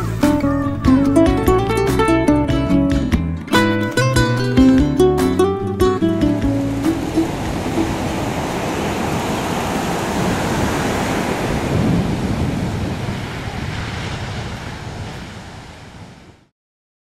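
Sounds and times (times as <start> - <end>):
waves breaking on a beach: 6.0 - 16.5.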